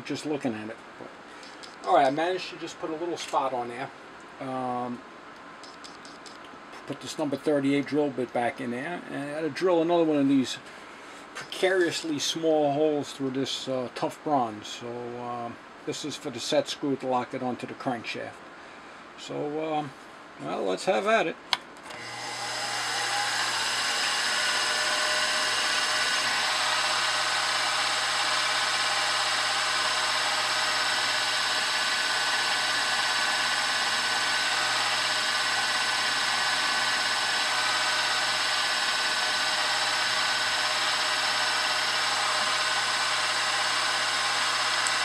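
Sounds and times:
milling machine spindle whining: 21.9s - 45.0s.

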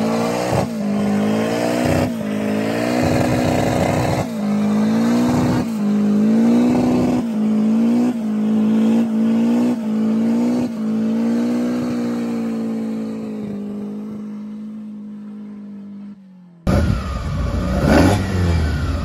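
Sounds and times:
car engine at high revs: 0.0s - 19.0s.

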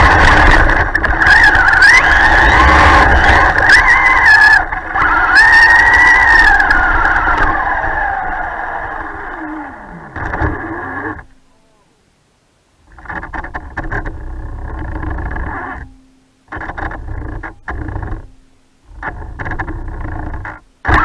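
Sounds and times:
electric motor whining: 0.0s - 11.4s, 18.9s - 21.0s.

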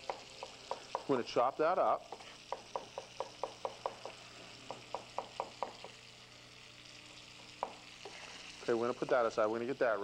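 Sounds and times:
knife chopping on cutting board: 0.0s - 1.2s.

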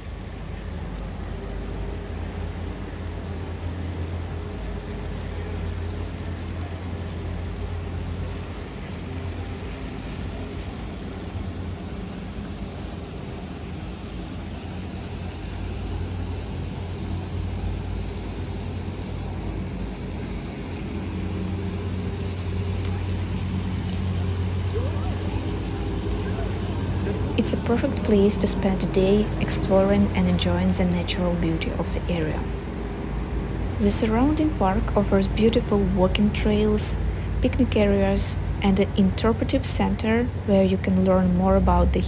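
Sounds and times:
boat engine idling: 0.0s - 42.0s.

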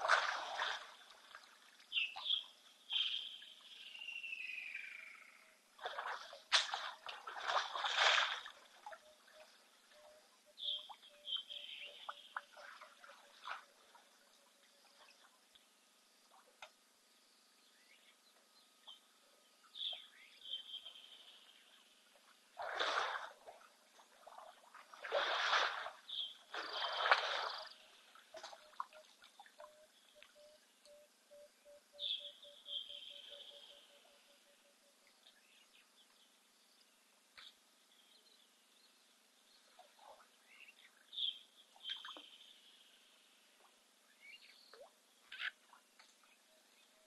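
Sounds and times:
elephant trunk splashing water: 0.0s - 1.6s, 5.8s - 8.9s, 22.6s - 28.6s
bird calls: 1.9s - 5.5s, 8.9s - 13.6s, 28.4s - 34.7s.

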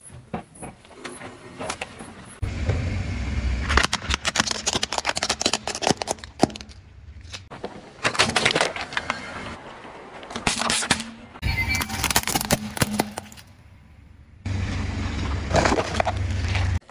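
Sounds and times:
plastic toy cracking and crunching: 3.7s - 9.1s, 11.8s - 13.5s.

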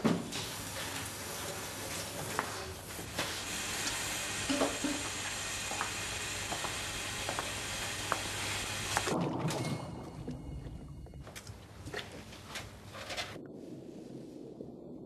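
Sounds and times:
tap water running into sink: 3.1s - 9.2s.

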